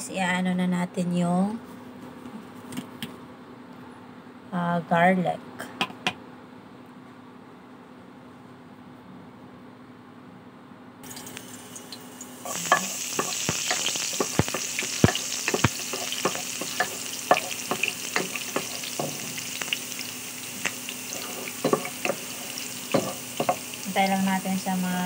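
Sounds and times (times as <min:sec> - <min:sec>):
garlic sizzling in oil: 0:11.0 - 0:25.0
wooden spoon knocking pan: 0:12.6 - 0:19.5, 0:21.2 - 0:23.7.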